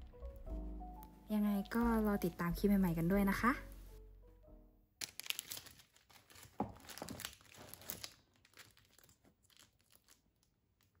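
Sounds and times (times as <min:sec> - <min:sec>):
plastic wrap crinkling: 0:05.0 - 0:11.0.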